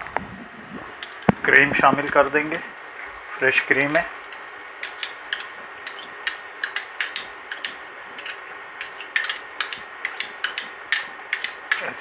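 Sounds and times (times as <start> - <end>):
metal spoon tapping a pot: 4.3 - 11.9.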